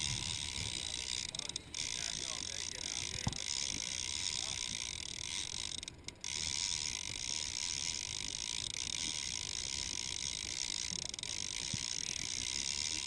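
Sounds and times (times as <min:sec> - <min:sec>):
fishing reel clicking: 0:00.0 - 0:13.0.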